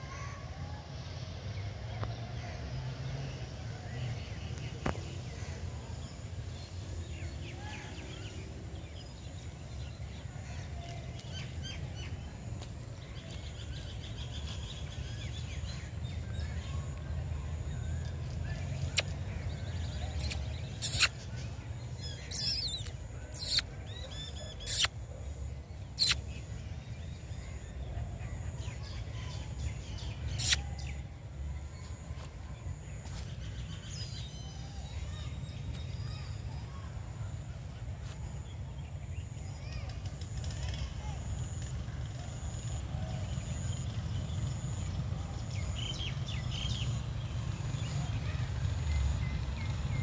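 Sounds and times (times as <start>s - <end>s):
low outdoor rumble: 0.0s - 50.0s
high-pitched bird chirps: 20.2s - 21.2s, 22.2s - 23.7s, 24.5s - 24.9s, 26.0s - 26.2s, 30.3s - 30.8s.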